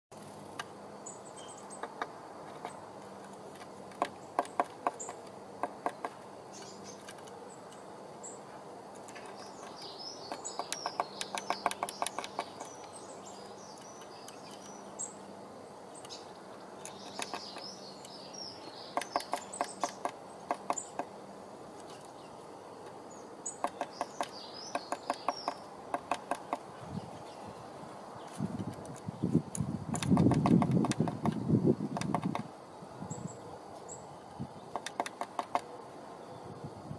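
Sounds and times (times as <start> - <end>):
high chirping bird calls: 1.0 - 2.9, 4.0 - 8.5, 9.2 - 21.2, 21.8 - 28.4
bird pecking at wooden nest box: 1.8 - 6.2, 9.0 - 13.0, 19.0 - 21.1, 23.6 - 26.7, 29.9 - 32.5, 34.7 - 35.7.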